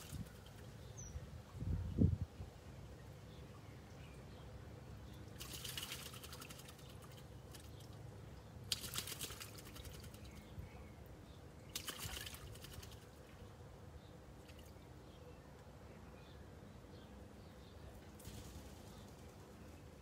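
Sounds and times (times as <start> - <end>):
bird splashing in water: 5.2 - 10.4, 11.7 - 13.4.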